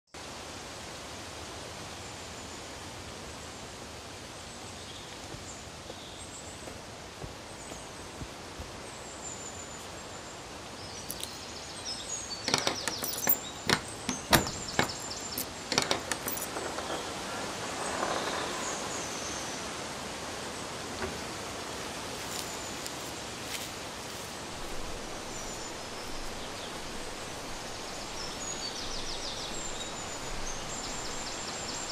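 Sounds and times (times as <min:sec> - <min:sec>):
outdoor ambience: 0:00.1 - 0:31.9
keys and padlock rattling: 0:11.1 - 0:11.4, 0:12.5 - 0:16.6
wooden doors scraping open: 0:12.4 - 0:19.1.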